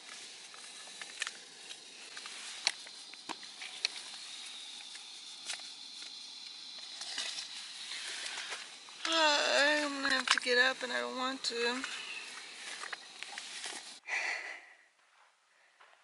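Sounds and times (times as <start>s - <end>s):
gas stove hissing: 0.0s - 14.6s.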